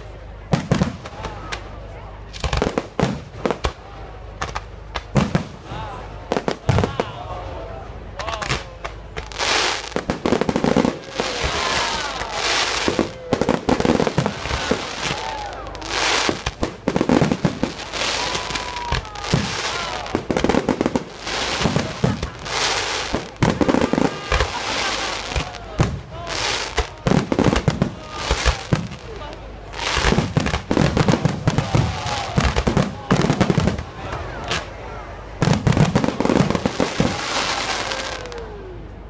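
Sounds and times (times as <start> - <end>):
fireworks bangs: 0.0 - 1.7, 2.3 - 7.2, 8.2 - 38.5
fireworks crackling hiss: 8.4 - 34.8, 35.4 - 38.5.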